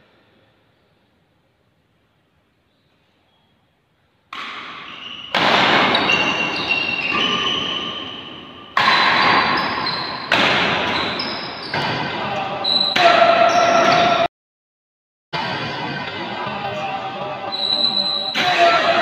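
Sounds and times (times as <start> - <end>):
racket striking shuttlecock: 4.3 - 7.7, 8.7 - 12.1
shoe squeaks on court floor: 4.7 - 12.0, 17.5 - 18.3.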